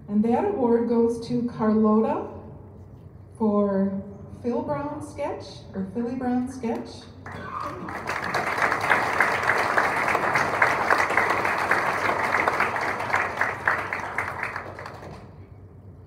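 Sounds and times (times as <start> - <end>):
audience applauding: 7.2 - 15.4.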